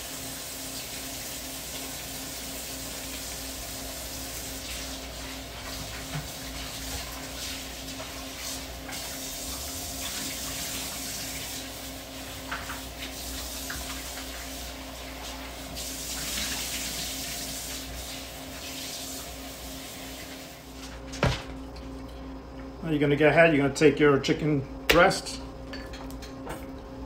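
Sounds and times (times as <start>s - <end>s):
faucet running into a sink: 0.0s - 20.6s.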